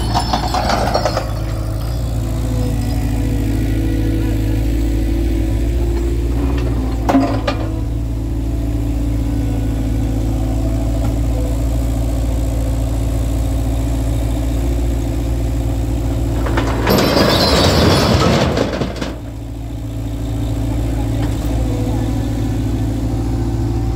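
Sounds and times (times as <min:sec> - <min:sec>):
load rattling into steel skip: 0:00.0 - 0:02.6, 0:16.2 - 0:19.5
loader diesel engine running: 0:00.0 - 0:23.9.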